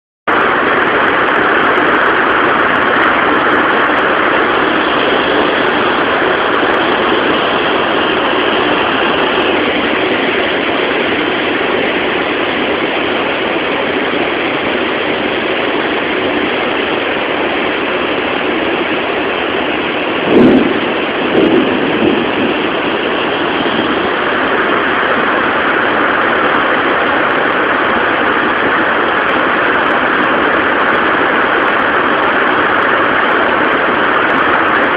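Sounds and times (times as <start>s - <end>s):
heavy rain pouring: 0.3s - 34.9s
thunder crack: 19.5s - 26.7s
thunder bangs: 20.0s - 26.6s.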